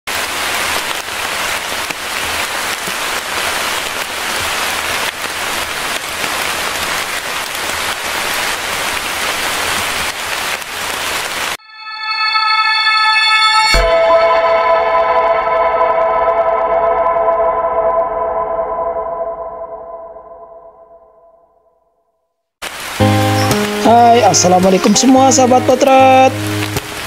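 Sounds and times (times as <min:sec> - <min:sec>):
heavy rain hiss: 0:00.1 - 0:11.6, 0:22.6 - 0:27.0
synthesized musical tone: 0:11.6 - 0:21.4.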